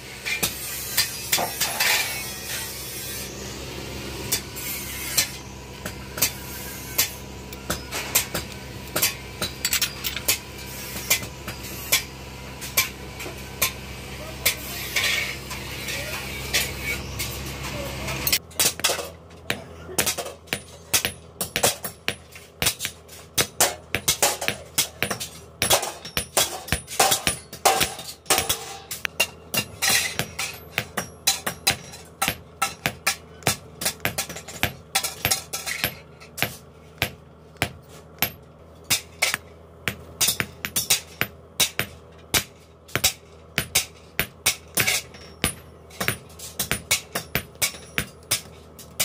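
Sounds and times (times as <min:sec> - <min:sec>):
forge fire humming: 0:00.0 - 0:49.0
hammer striking steel on anvil: 0:04.3 - 0:13.8, 0:18.1 - 0:49.0.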